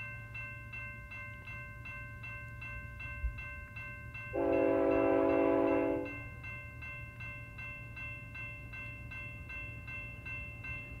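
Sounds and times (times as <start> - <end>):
locomotive air horn blast: 4.4 - 6.1.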